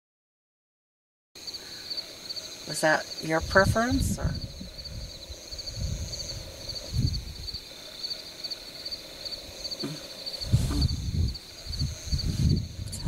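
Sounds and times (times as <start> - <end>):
night insects chirping: 1.4 - 13.0
low rumbles: 2.7 - 7.8, 9.1 - 13.0.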